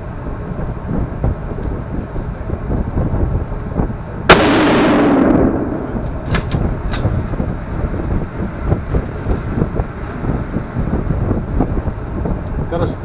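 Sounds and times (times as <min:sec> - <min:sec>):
loud rifle shot: 0:04.3 - 0:07.2
sharp metallic clicks: 0:04.4 - 0:07.4.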